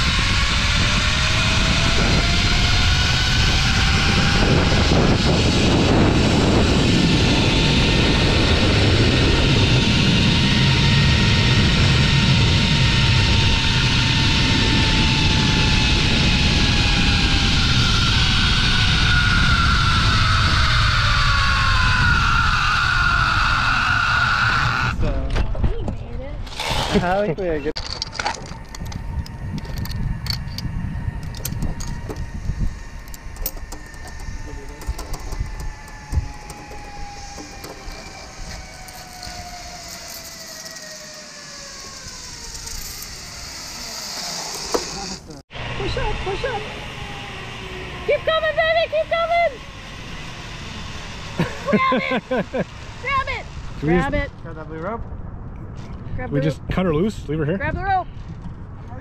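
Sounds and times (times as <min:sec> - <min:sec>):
zip-line pulleys whining: 0:00.0 - 0:25.1, 0:26.4 - 0:27.3, 0:27.9 - 0:54.2
wind rush on microphone: 0:00.0 - 0:27.7, 0:28.3 - 0:41.0
rattles and ticks: 0:27.8 - 0:45.3.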